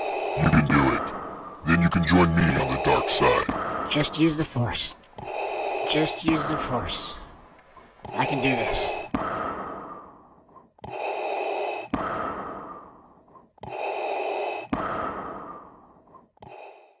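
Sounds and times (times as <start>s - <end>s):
mechanical respirator breathing: 0.0s - 4.2s, 8.0s - 17.0s.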